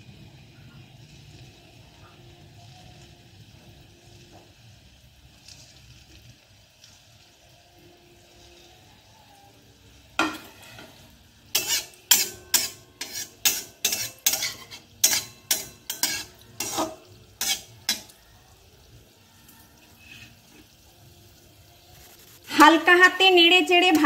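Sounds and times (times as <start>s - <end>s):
oil sizzling: 0.0s - 24.0s
metal spatula scraping a pan: 10.2s - 18.2s, 19.8s - 20.9s.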